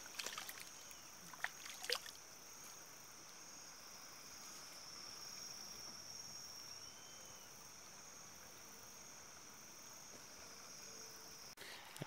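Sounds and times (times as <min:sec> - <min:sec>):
faint whistle: 0:06.7 - 0:07.6.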